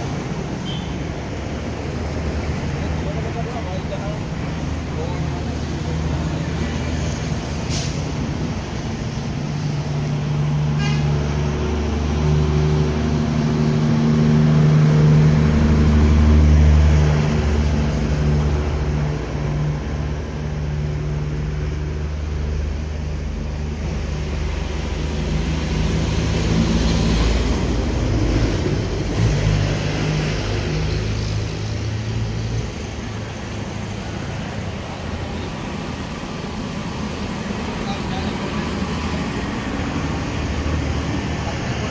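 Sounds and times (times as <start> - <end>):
vehicle engines humming: 0.0 - 41.9.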